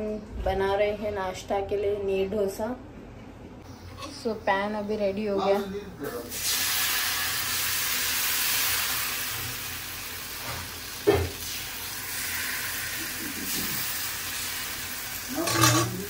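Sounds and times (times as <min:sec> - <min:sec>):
batter sizzling on hot pan: 0:06.3 - 0:16.0.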